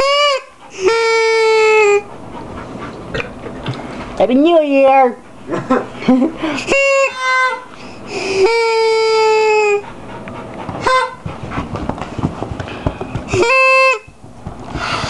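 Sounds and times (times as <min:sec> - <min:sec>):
dog panting: 0:00.2 - 0:01.0, 0:01.8 - 0:04.2, 0:09.7 - 0:13.4.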